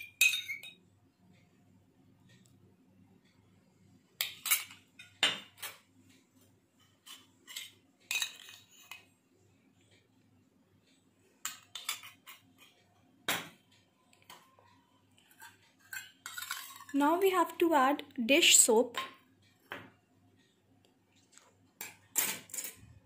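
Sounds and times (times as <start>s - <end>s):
metal spoon clinking on dishes: 0.0s - 0.9s, 4.2s - 5.9s, 7.0s - 9.1s, 11.4s - 12.8s, 15.2s - 16.9s.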